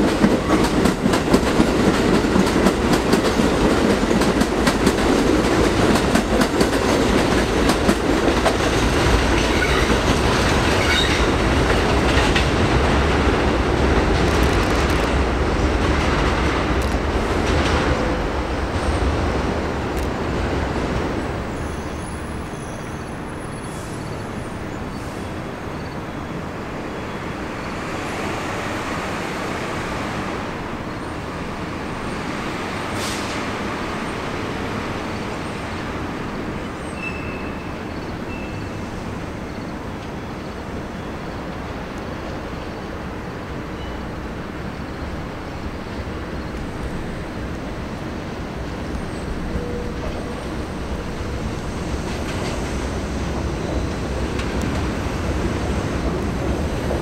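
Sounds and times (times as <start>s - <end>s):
city noise: 0.0s - 57.0s
distant rumble of trains: 0.0s - 57.0s
train running on elevated track: 0.0s - 57.0s
hiss of air: 32.9s - 33.5s.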